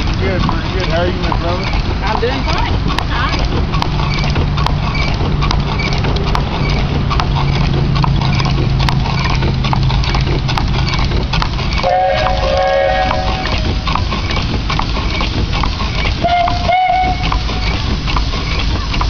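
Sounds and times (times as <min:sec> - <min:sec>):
steam engine clattering: 0:00.0 - 0:19.0
chord-like steam whistle: 0:11.8 - 0:13.7, 0:16.2 - 0:17.6.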